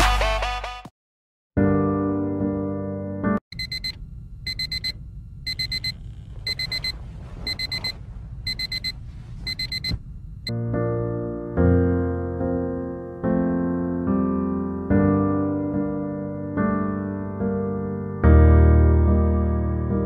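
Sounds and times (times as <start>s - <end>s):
piano music: 1.6s - 3.4s, 10.5s - 20.0s
phone alarm beeping: 3.6s - 10.0s.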